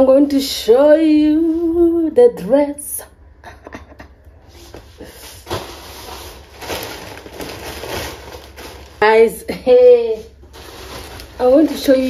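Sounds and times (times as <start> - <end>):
plastic bag rustling: 4.6 - 12.0.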